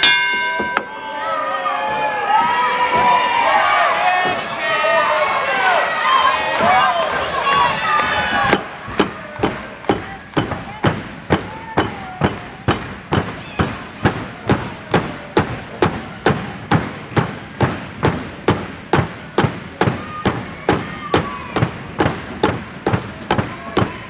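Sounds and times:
crowd beating rhythm in unison: 0:06.5 - 0:24.0.

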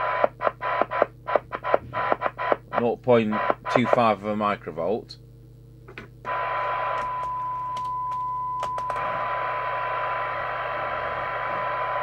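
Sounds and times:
receiver noise hiss: 0:00.0 - 0:12.0
steady test tone: 0:00.8 - 0:04.3.

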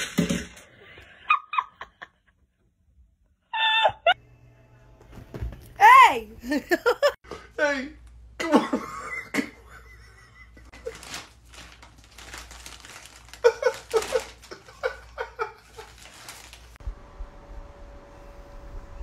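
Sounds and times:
person laughing: 0:03.6 - 0:04.2, 0:06.4 - 0:07.2, 0:08.4 - 0:11.2, 0:13.3 - 0:16.2
plastic bag crinkling: 0:10.8 - 0:16.8.

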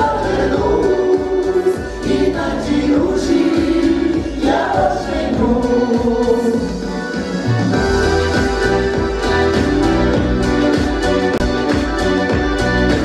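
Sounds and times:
women's folk ensemble singing: 0:00.0 - 0:07.0
accordion: 0:00.0 - 0:13.0
steady low rhythm: 0:00.0 - 0:13.0.

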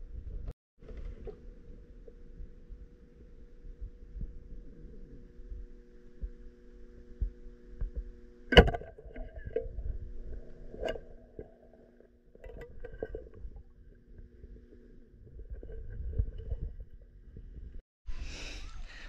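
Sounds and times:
steady low hum: 0:00.0 - 0:17.8
pole knocking on rocks underwater: 0:07.2 - 0:11.8, 0:12.4 - 0:13.6.

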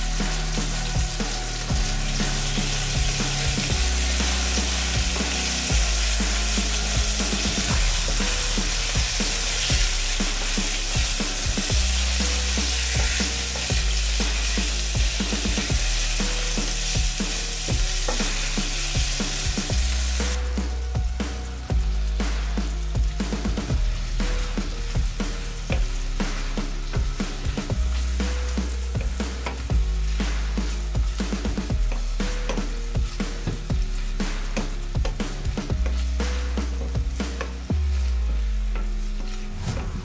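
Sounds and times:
wooden spoon stirring in pan: 0:00.0 - 0:20.4, 0:23.2 - 0:39.6
beef sizzling in hot oil: 0:00.0 - 0:39.9
background music with bass line: 0:00.0 - 0:40.0.

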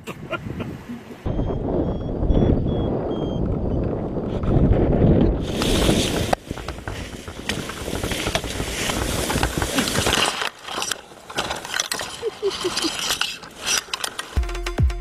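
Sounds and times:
wind rushing over microphone: 0:00.0 - 0:10.5
branches snapping and crackling: 0:05.4 - 0:14.4
leaves rustling: 0:05.4 - 0:14.7.

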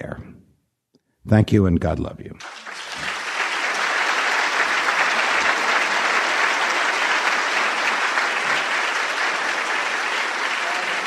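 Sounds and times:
audience applauding: 0:02.4 - 0:11.0.

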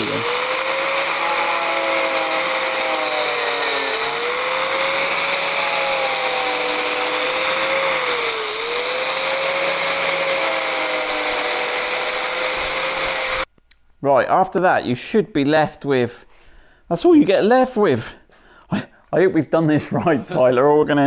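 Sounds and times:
rotary cutting tool whining: 0:00.0 - 0:13.5.

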